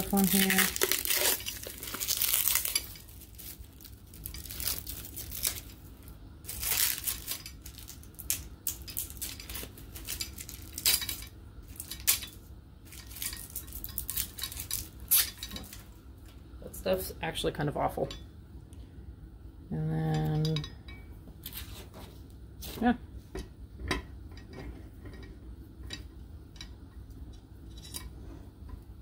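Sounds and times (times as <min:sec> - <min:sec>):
plastic wrapping tearing and crinkling: 0:00.0 - 0:05.8, 0:06.5 - 0:12.3, 0:12.9 - 0:15.9.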